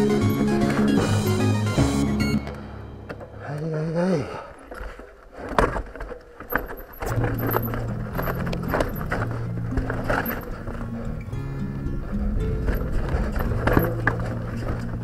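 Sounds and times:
mountain bike rattling over rocks: 0.0s - 1.5s, 4.6s - 15.0s
music: 0.0s - 3.6s, 7.1s - 15.0s.

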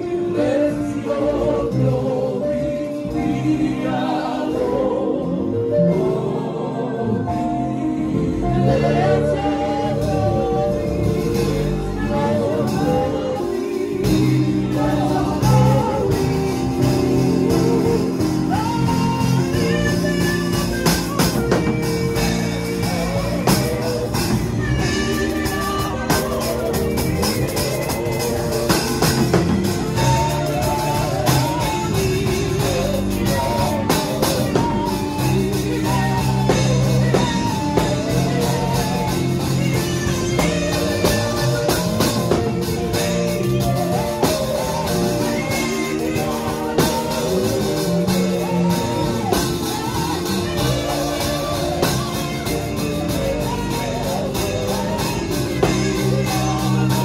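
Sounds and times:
keyboard chords: 0.0s - 57.0s
woman singing into a microphone: 0.0s - 57.0s
steady percussion beat: 7.4s - 57.0s.

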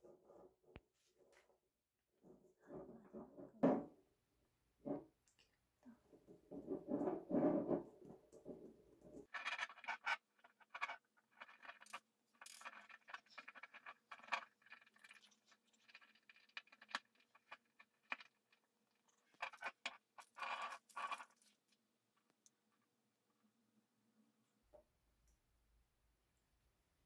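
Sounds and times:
pebbles rattling in glass jar: 9.3s - 18.5s.

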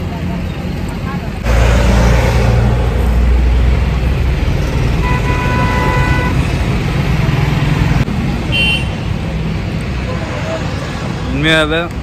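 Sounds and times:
road traffic rumble: 0.0s - 12.0s
vehicle horn honking: 5.0s - 6.4s, 8.5s - 9.1s.

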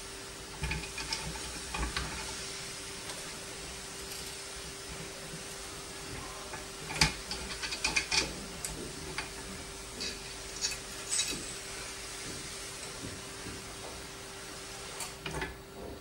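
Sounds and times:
metal parts clicking and knocking: 6.9s - 9.3s, 10.0s - 11.6s.

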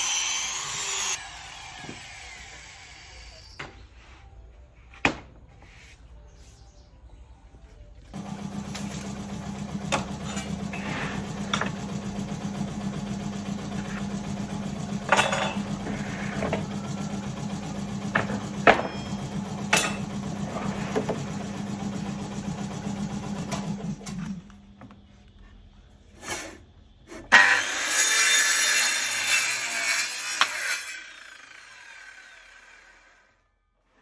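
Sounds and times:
machine motor humming: 8.1s - 15.1s, 15.7s - 24.5s.

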